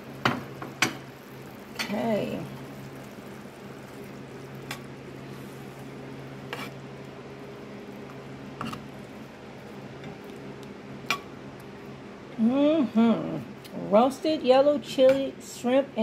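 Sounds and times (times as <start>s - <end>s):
sauce simmering in skillet: 0.0s - 12.3s.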